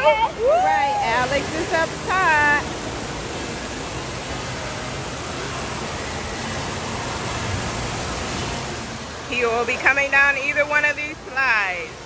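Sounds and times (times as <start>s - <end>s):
running and splashing water: 0.0s - 12.0s.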